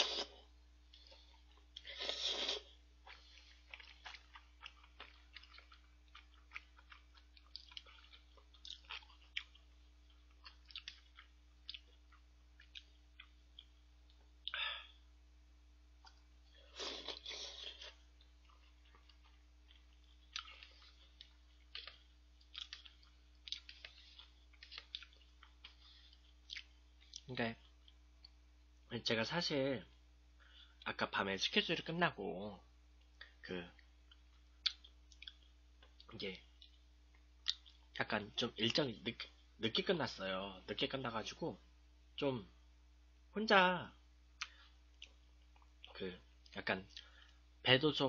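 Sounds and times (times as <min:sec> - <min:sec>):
chewing with crunches: 0:00.9 - 0:14.6, 0:16.0 - 0:28.4, 0:33.0 - 0:38.0.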